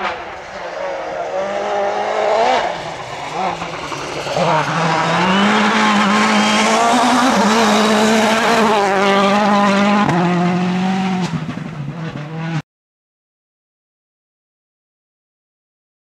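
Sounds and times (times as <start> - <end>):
rally car engine revving high: 0.0 - 12.6.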